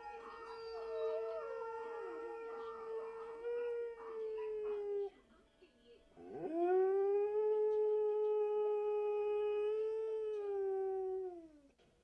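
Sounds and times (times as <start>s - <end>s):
dog howling: 0.0s - 5.1s.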